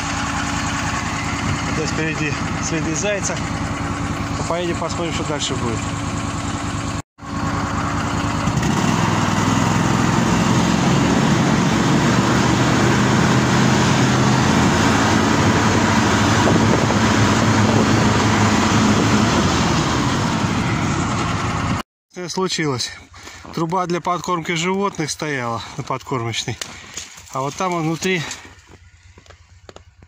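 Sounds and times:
snowmobile engine drone: 0:00.0 - 0:21.8.

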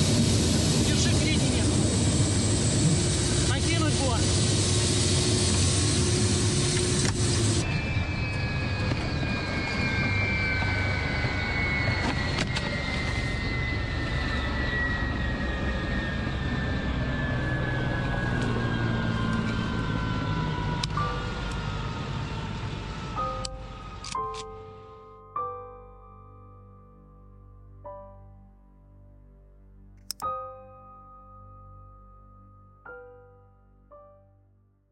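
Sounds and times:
turbine whine falling in pitch: 0:00.0 - 0:23.4
soft piano music: 0:20.9 - 0:34.8.

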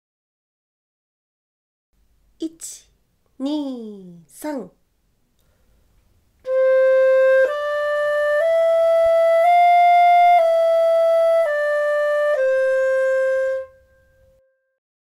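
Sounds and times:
solo flute playing a scale: 0:06.4 - 0:14.7.

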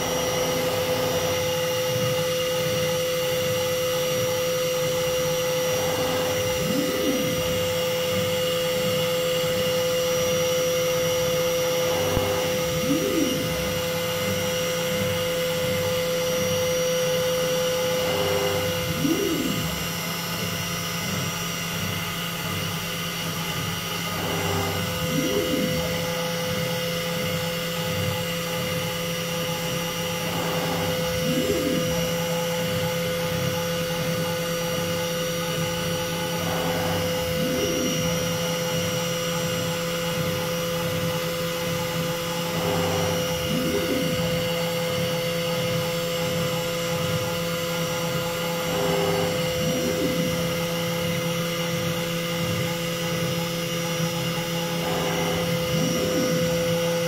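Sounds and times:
cnc router whine and hum: 0:00.0 - 0:57.0
motor rising and falling sweep: 0:04.1 - 0:20.5, 0:23.9 - 0:27.6, 0:29.8 - 0:33.3, 0:35.6 - 0:40.2, 0:41.8 - 0:46.7, 0:47.3 - 0:52.1, 0:54.1 - 0:57.0.

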